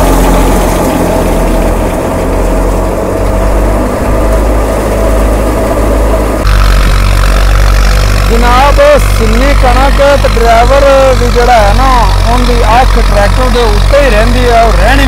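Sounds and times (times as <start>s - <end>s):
thresher clattering: 0.0s - 15.0s
tractor diesel engine humming: 0.0s - 15.0s.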